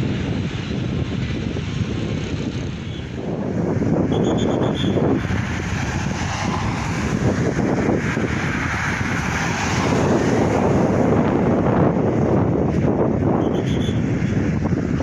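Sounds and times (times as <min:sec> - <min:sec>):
road traffic: 0:00.0 - 0:15.0
wind buffeting microphone: 0:00.0 - 0:15.0
car driving past: 0:04.9 - 0:11.8.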